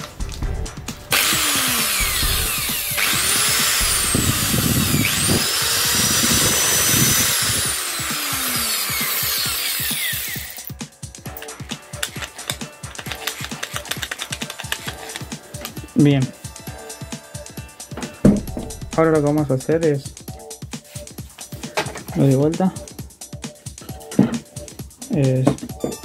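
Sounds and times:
background music: 0.0 - 26.0
angle grinder running unloaded: 1.1 - 15.2.

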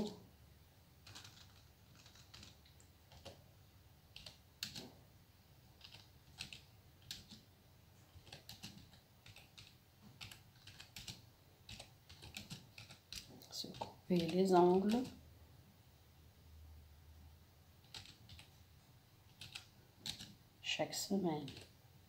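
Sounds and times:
computer keyboard typing: 1.0 - 3.5, 4.1 - 5.0, 5.7 - 7.5, 8.1 - 15.2, 17.8 - 18.6, 19.3 - 20.4, 21.3 - 21.8.

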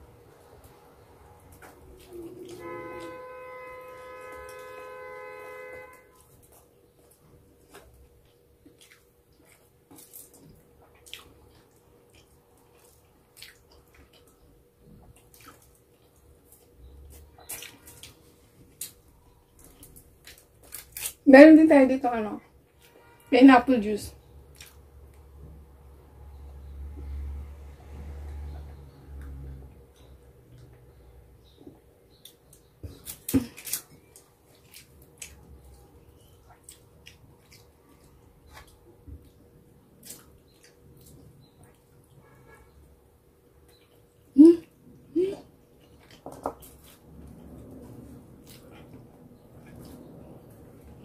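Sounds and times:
mouth smacks and chewing: 6.2 - 18.2, 32.1 - 42.3
tearing roasted chicken: 19.7 - 21.2, 33.0 - 35.9.

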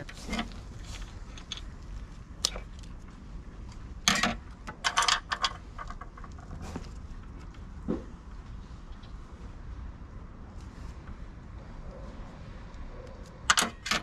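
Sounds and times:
clicks of handling small metal parts: 4.0 - 6.4.

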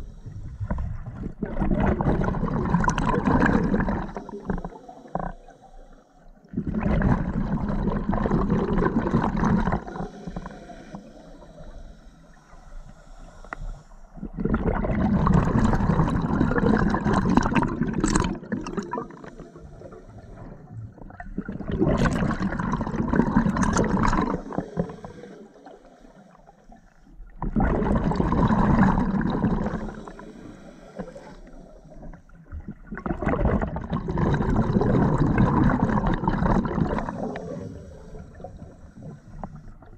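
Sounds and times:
exhaled bubbles underwater: 0.0 - 12.8, 14.1 - 39.9
regulator inhalation hiss: 9.9 - 14.2, 24.4 - 27.0, 29.7 - 32.3.

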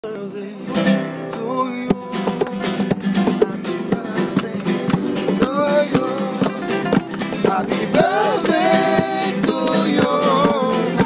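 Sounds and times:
man singing: 0.0 - 11.0
flamenco guitar strumming: 0.1 - 11.0.

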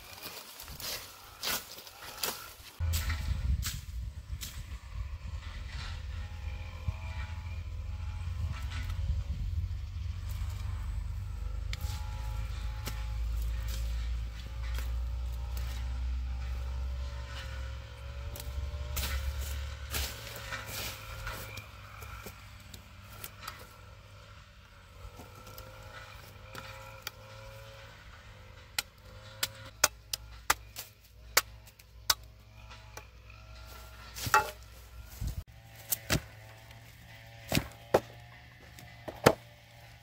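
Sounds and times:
machete chopping bamboo: 18.2 - 22.4, 28.7 - 32.4, 34.1 - 34.7, 35.7 - 39.6.

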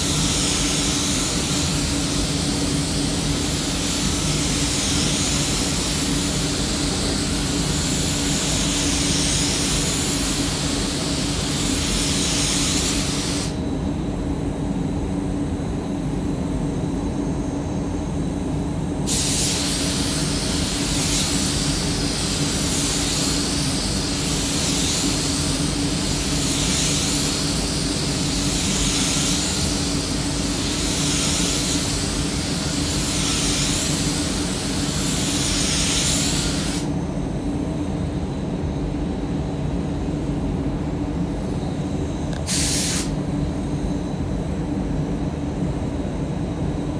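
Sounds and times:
spray gun hissing: 0.0 - 13.6, 19.1 - 37.0, 42.4 - 43.2
ventilation hum: 0.0 - 46.9.

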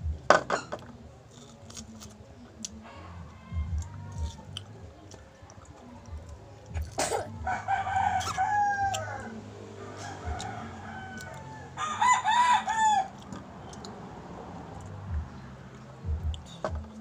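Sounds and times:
rooster crowing: 2.8 - 4.6, 7.4 - 13.3.

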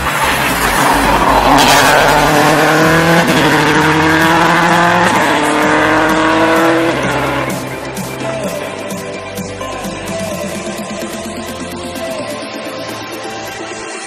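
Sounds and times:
rally car engine at full throttle: 0.0 - 13.2.

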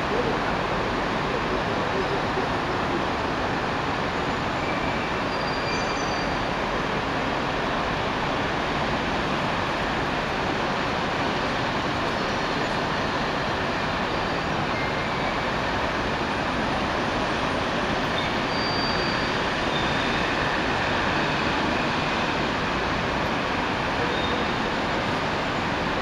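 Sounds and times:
city street traffic: 0.0 - 26.0.

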